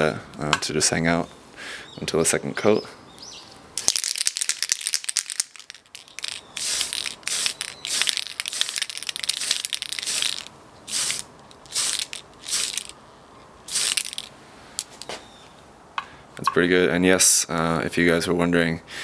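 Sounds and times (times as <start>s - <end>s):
quick clicks: 3.8s - 12.9s
aerosol spray paint hissing: 6.0s - 12.9s, 13.7s - 14.3s.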